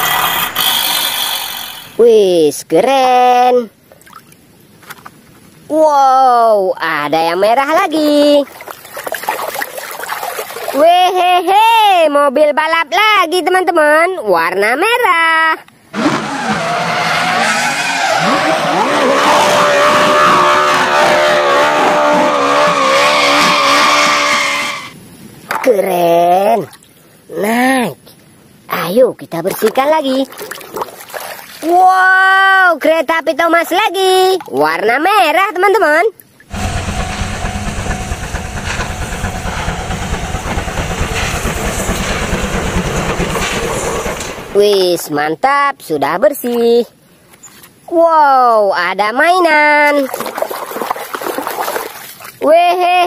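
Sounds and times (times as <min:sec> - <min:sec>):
car engine revving high: 0:16.0 - 0:24.9, 0:36.5 - 0:42.6
tyres hissing and squealing: 0:16.0 - 0:25.0, 0:36.5 - 0:44.6
steam locomotive rumbling: 0:16.4 - 0:25.0, 0:36.5 - 0:44.8.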